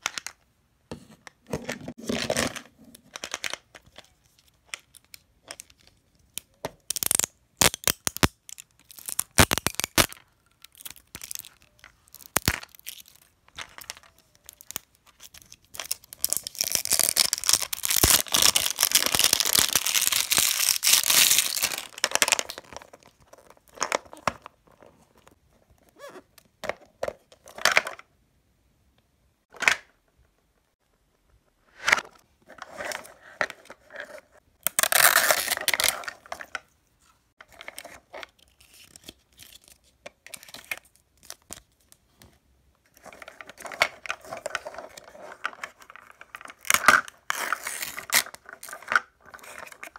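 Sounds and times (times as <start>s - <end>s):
plastic wrapping tearing and crinkling: 6.9s - 13.2s, 14.4s - 22.8s.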